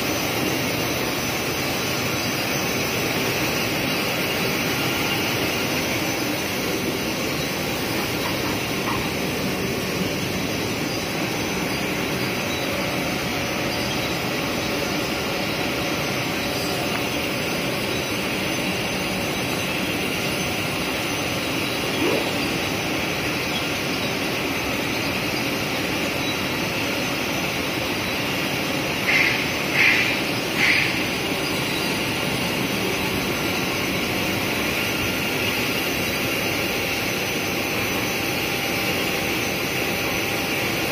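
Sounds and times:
printing machine whirring: 0.0s - 40.9s.

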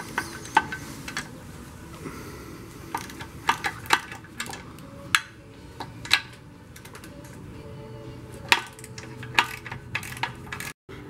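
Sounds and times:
ratchet metallic clicks: 2.9s - 7.4s, 8.4s - 10.8s.

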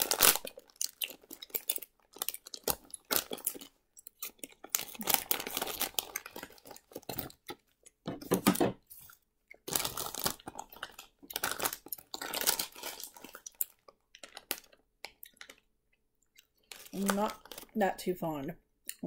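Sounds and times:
plastic bag crinkling and tearing: 0.0s - 7.6s, 9.6s - 15.6s, 16.6s - 17.8s
chewing gummy candy: 0.0s - 8.0s, 9.1s - 17.8s.

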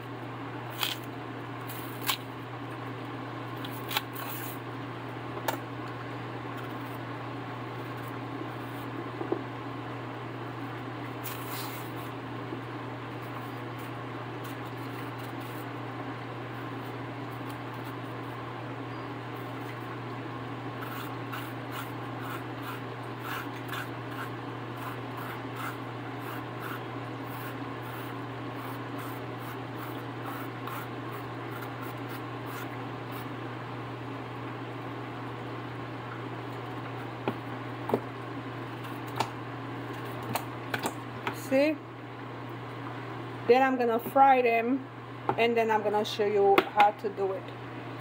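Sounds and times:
steady low hum: 0.0s - 48.0s
knife scraping peel: 0.7s - 2.3s, 3.6s - 4.6s, 11.2s - 12.2s, 13.2s - 15.7s, 20.8s - 33.3s.

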